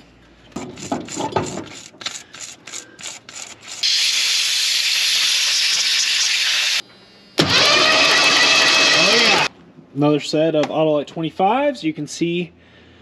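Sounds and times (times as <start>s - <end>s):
loud noise: 7.4s - 9.5s.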